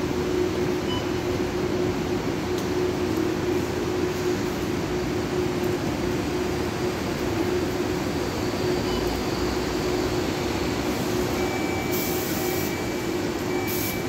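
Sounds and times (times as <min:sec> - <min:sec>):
bus doors closing with air hiss: 0:10.9 - 0:14.0.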